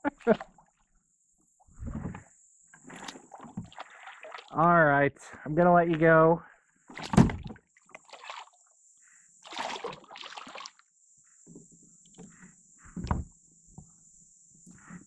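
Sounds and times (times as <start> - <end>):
water splashing around kayak: 1.7 - 4.6, 6.9 - 8.7, 9.4 - 10.9.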